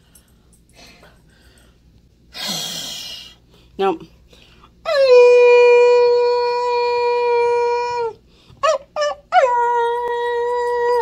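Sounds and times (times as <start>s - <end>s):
dog howling: 4.9s - 11.0s.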